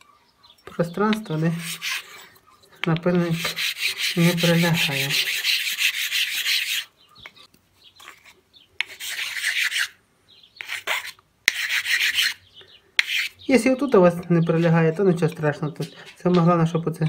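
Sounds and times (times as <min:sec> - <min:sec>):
hand file rasping on metal: 0:01.5 - 0:02.3, 0:03.3 - 0:06.9, 0:08.8 - 0:09.9, 0:10.6 - 0:12.4.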